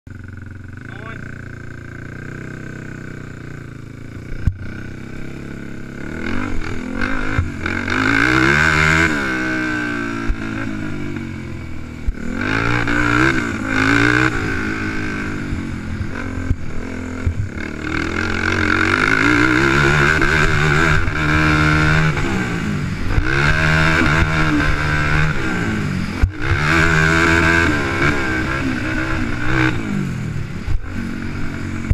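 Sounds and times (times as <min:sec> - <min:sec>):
quad engine revving: 0:00.1 - 0:31.9.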